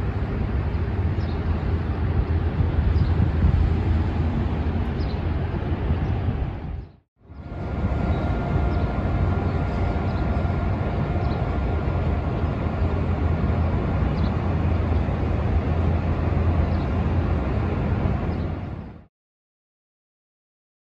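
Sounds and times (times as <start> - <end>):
low outdoor rumble: 0.0 - 19.1
faint steady whine: 7.2 - 19.0.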